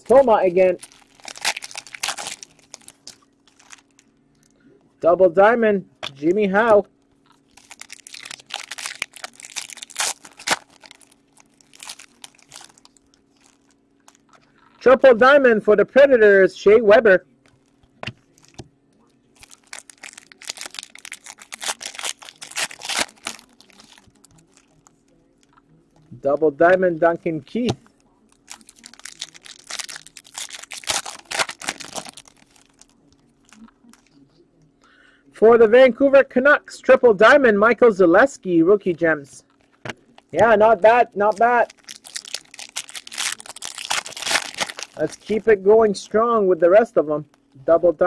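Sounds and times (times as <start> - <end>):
card pack wrapper crinkling and tearing: 0.0 - 4.0, 7.4 - 14.3, 19.4 - 24.9, 28.4 - 34.2, 39.6 - 45.5.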